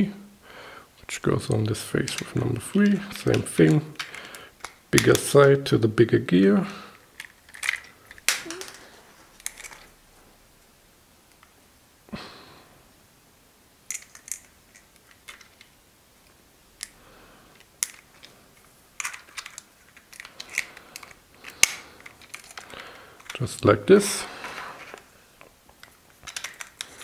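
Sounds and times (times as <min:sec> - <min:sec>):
plastic puzzle pieces clicking: 0:02.0 - 0:05.4, 0:06.9 - 0:09.9, 0:13.9 - 0:15.8, 0:16.8 - 0:23.4, 0:24.8 - 0:27.0.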